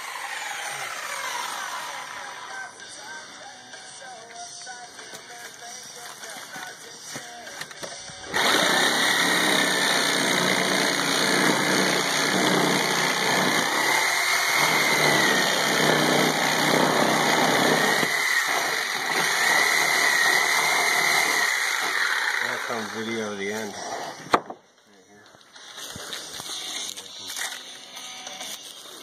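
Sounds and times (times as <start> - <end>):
reciprocating saw cutting wood: 0.0 - 2.6, 8.3 - 24.4.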